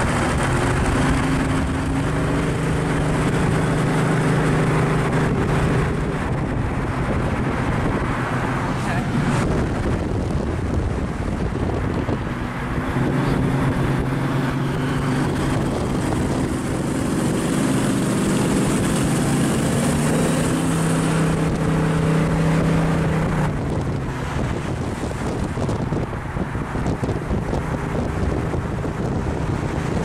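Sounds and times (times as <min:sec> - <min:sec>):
car engine droning: 0:00.0 - 0:30.0
wind and road noise: 0:00.0 - 0:30.0.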